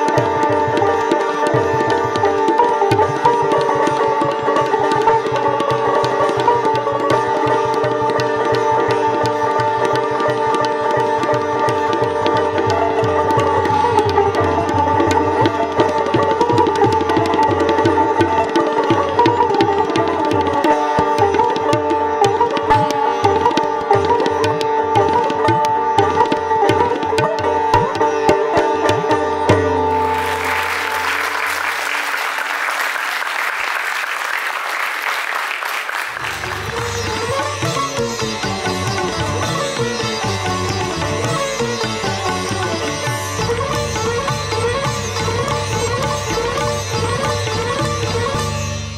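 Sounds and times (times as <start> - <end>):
sitar and tabla music: 0.0 - 48.9
audience applauding: 30.0 - 43.3.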